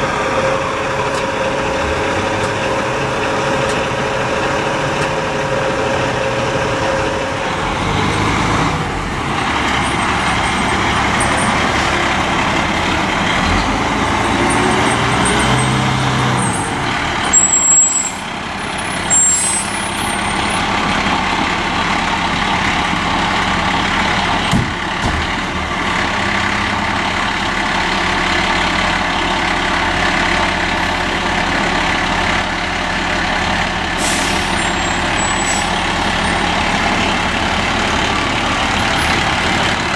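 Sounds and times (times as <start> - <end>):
diesel truck engine running: 0.0 - 39.9
air brake hisses: 34.0 - 35.8.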